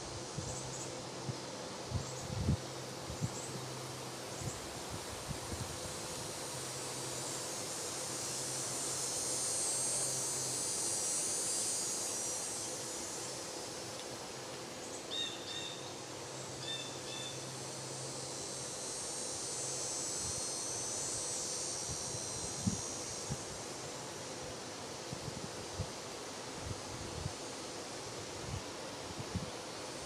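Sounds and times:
steady high hiss: 0:00.0 - 0:30.0.

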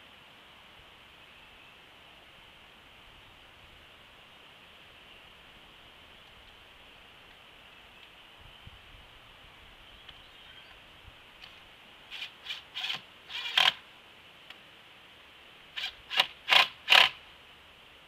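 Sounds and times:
cordless drill driving screw: 0:12.1 - 0:13.8, 0:15.8 - 0:17.2.

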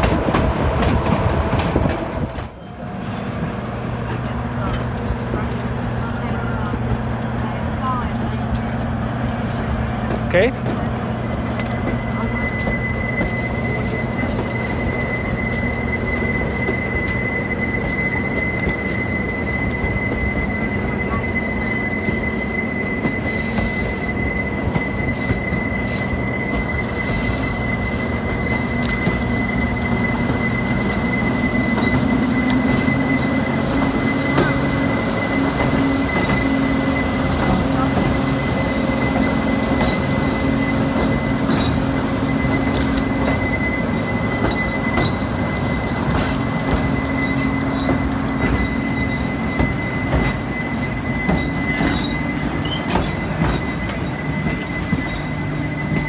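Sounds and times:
low rumble of train cars: 0:00.0 - 0:56.0
train wheels squealing on rail: 0:00.0 - 0:56.0
sharp clicks: 0:00.1 - 0:40.2.

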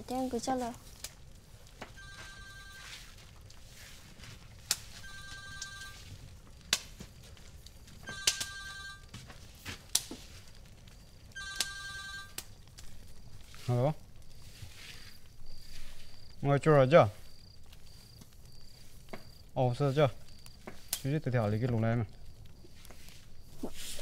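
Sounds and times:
mobile phone ringtone: 0:02.0 - 0:03.1, 0:05.0 - 0:06.1, 0:08.1 - 0:09.1, 0:11.4 - 0:12.4.

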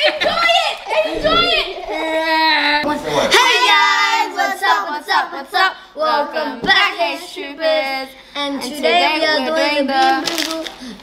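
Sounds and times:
woman and children singing: 0:02.5 - 0:11.0.

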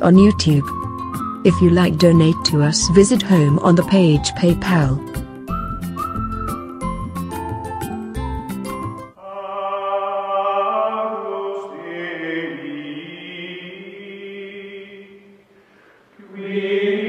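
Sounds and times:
choir-like chanted chord: 0:09.2 - 0:15.4, 0:16.2 - 0:17.0.

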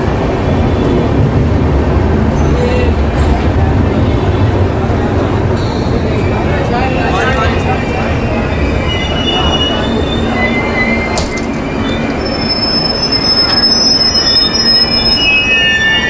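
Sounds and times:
train rumbling on rails: 0:00.0 - 0:16.0
wheels squealing on rails: 0:05.3 - 0:16.0.

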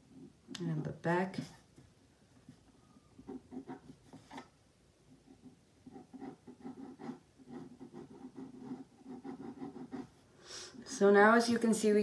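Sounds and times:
pencil scratching on paper: 0:03.3 - 0:04.4, 0:05.2 - 0:10.2.

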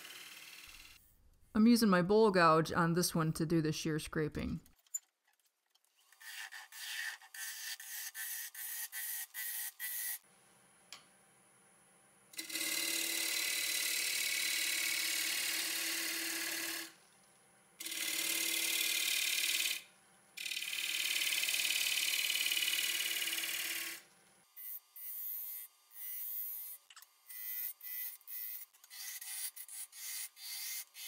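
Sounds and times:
gouge cutting wood on a lathe: 0:12.4 - 0:16.9.

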